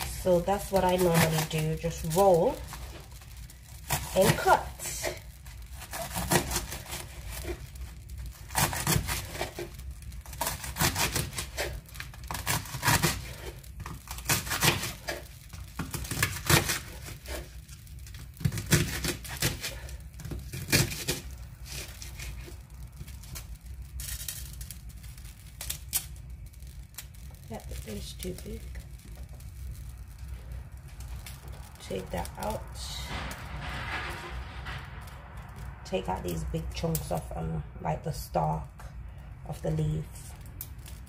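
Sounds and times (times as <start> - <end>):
knife slicing cabbage: 3.8 - 7.6, 8.4 - 17.6, 18.4 - 22.5.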